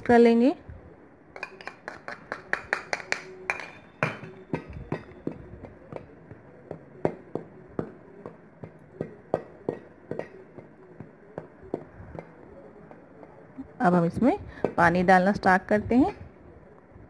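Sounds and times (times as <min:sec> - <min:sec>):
metal spoon clinking on steel bowl: 0:01.4 - 0:04.3.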